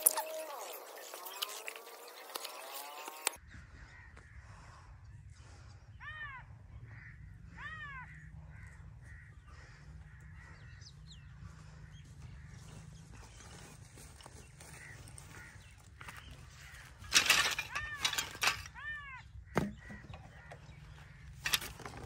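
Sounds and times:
small birds calling: 0:00.0 - 0:04.4, 0:05.2 - 0:22.0
crow cawing: 0:06.0 - 0:10.8.

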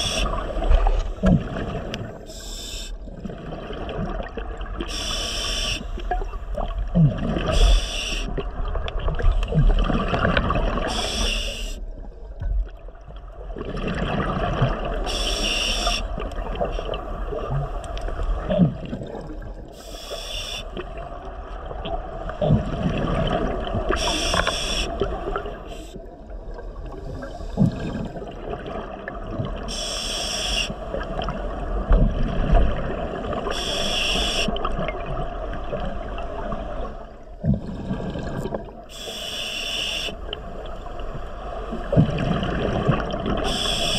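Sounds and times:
bubbling and gurgling: 0:00.0 - 0:02.4, 0:03.0 - 0:19.9, 0:20.7 - 0:30.0, 0:30.7 - 0:39.1, 0:40.2 - 0:43.9
diver breathing through regulator: 0:04.9 - 0:06.1, 0:10.9 - 0:11.8, 0:15.1 - 0:16.1, 0:19.8 - 0:20.8, 0:23.9 - 0:25.1, 0:29.7 - 0:30.8, 0:33.5 - 0:34.5, 0:38.9 - 0:40.2, 0:43.4 - 0:43.9.

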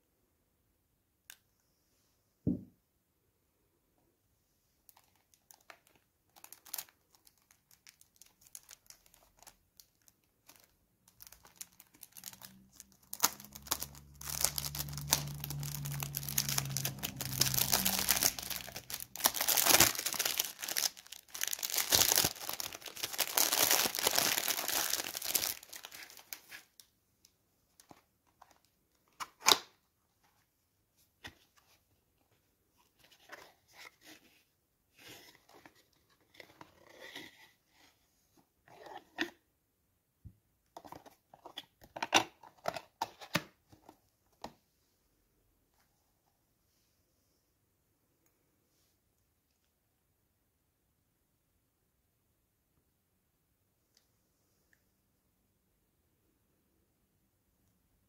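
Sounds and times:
cellophane crinkling and tearing: 0:04.9 - 0:26.9.

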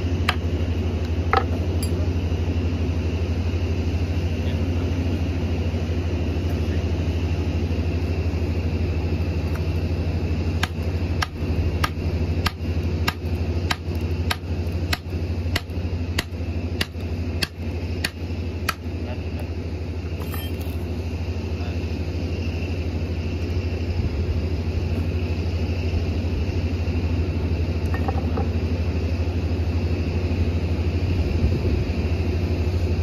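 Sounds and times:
engine idling: 0:00.0 - 0:33.0.

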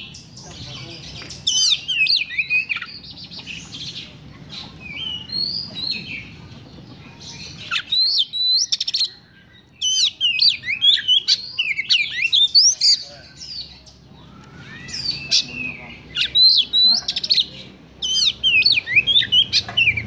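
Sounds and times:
bird singing whistled notes: 0:09.8 - 0:16.9, 0:18.0 - 0:20.0.

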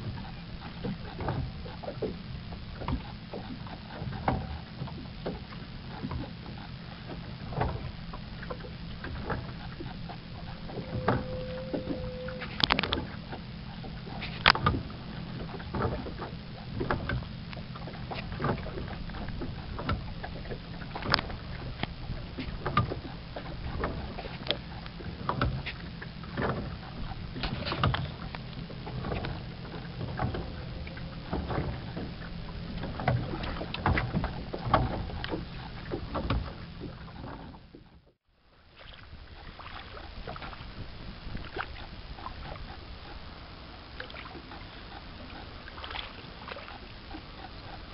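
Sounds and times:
steady low hum: 0:00.0 - 0:47.9
lapping water: 0:38.8 - 0:40.6, 0:44.0 - 0:47.9.

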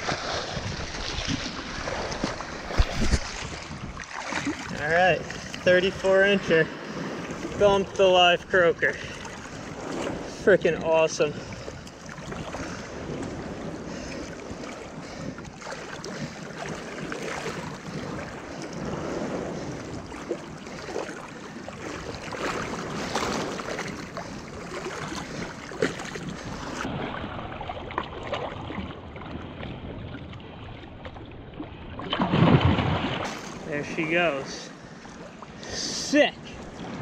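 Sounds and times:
fish splashing: 0:00.0 - 0:05.6
surf water sloshing and splashing: 0:00.0 - 0:37.0.

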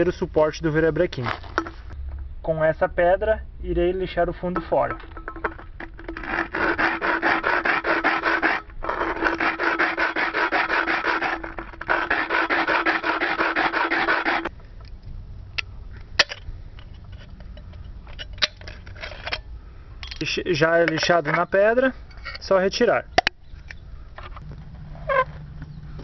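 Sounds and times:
can scraping on rough stone: 0:04.9 - 0:14.5.

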